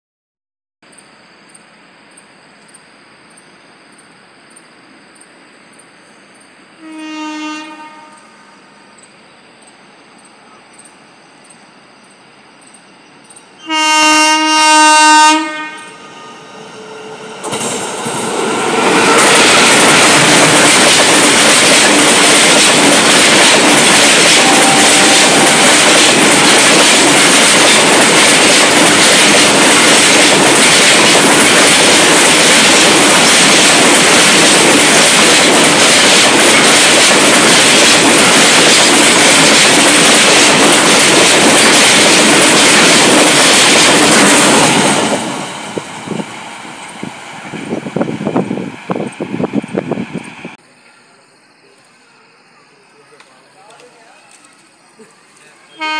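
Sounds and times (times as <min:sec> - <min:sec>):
train horn blast: 0:06.8 - 0:08.7, 0:13.6 - 0:17.3, 0:24.1 - 0:26.0
freight train wheels on rails: 0:07.8 - 0:50.6
rapid clickety-clack: 0:19.0 - 0:45.3.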